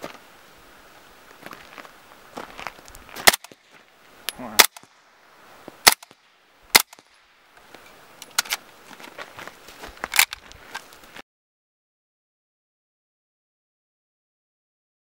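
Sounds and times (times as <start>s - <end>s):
suppressed gunshots: 3.2s - 3.7s, 4.5s - 4.9s, 5.8s - 7.2s.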